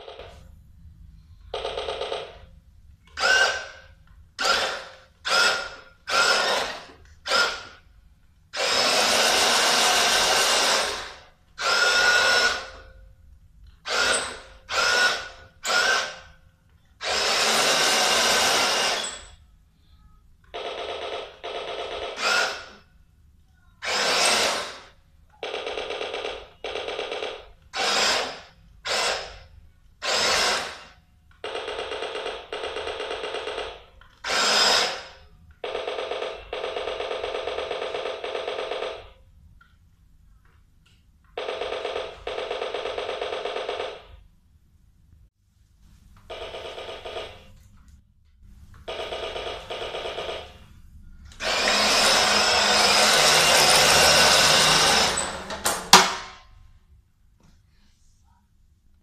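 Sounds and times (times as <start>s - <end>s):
toy motor and gearbox whirring: 3.1s - 3.8s, 4.4s - 7.8s, 13.9s - 16.3s, 17.0s - 19.4s, 22.1s - 22.8s, 23.8s - 24.9s, 34.1s - 35.2s.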